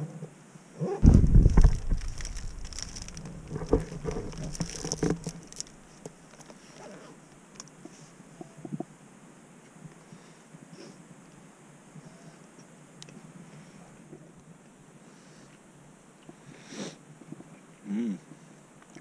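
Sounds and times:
low handling rumble: 1.0s - 6.1s.

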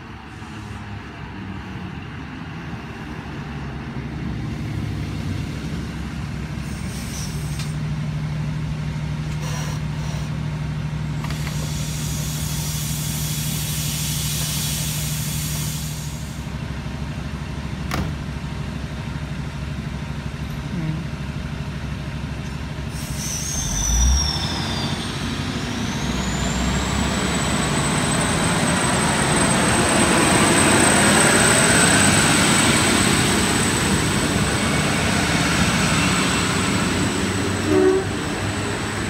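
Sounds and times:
diesel railcar engine droning: 0.0s - 39.0s
air hiss: 11.3s - 16.5s.

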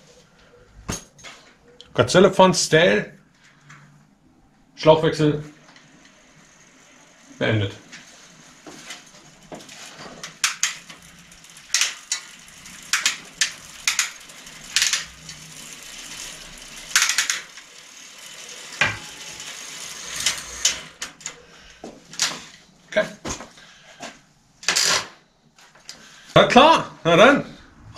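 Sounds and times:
metal tools clinking and rattling: 18.4s - 21.4s.

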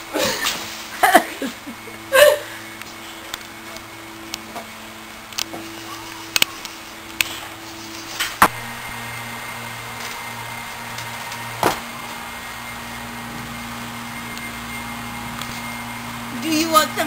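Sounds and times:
steady low hum: 0.0s - 17.0s
knocks and thumps on wooden porch: 11.6s - 11.9s.

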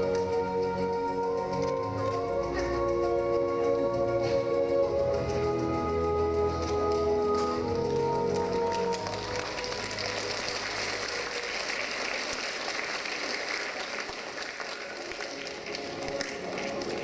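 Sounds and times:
performance music: 0.0s - 17.0s
audience applauding: 6.9s - 17.0s.

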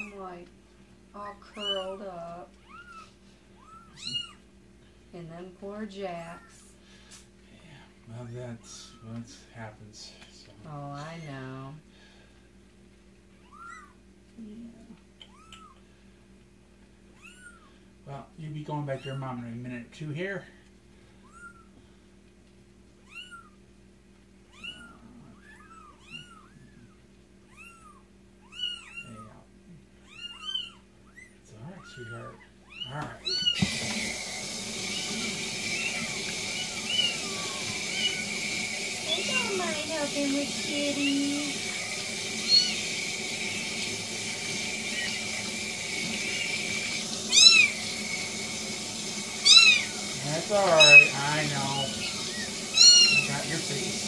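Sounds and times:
kitten mewing: 2.6s - 4.5s, 15.2s - 15.8s, 17.1s - 17.7s, 23.0s - 23.6s, 24.5s - 33.6s, 34.8s - 38.4s, 40.8s - 42.9s, 47.3s - 47.8s, 49.4s - 53.4s
tap water hissing into sink: 33.3s - 54.0s.

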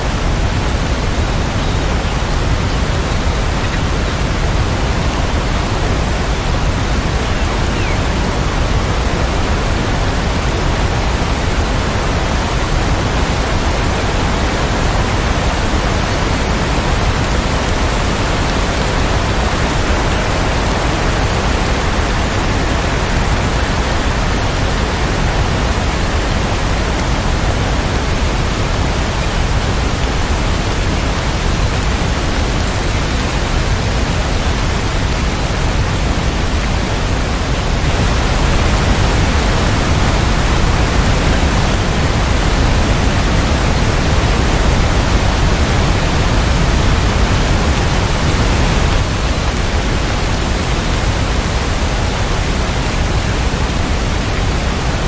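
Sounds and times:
steady rain hiss: 0.0s - 55.0s.

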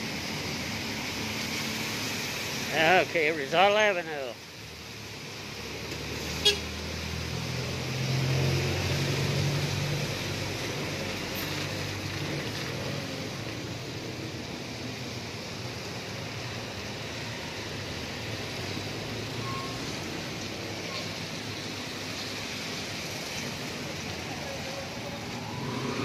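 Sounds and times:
rain hissing: 0.0s - 26.0s
tyres on wet road: 0.0s - 26.0s
diesel engine passing: 5.4s - 26.0s.

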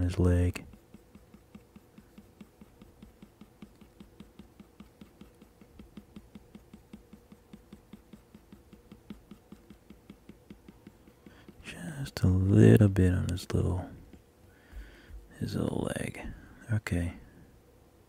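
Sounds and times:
stylus tapping on tablet screen: 0.0s - 12.1s, 14.0s - 15.3s
faint steady hum: 0.0s - 18.0s.

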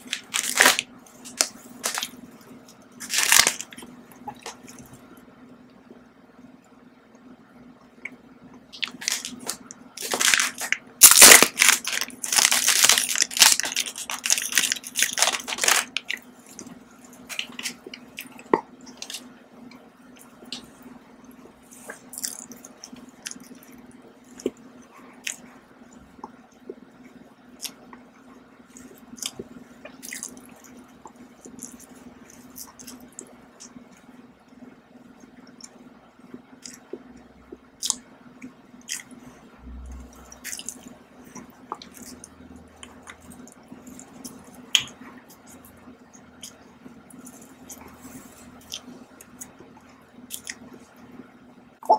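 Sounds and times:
plastic candy wrapper crackling: 0.0s - 2.2s, 3.0s - 3.8s, 8.8s - 16.2s.

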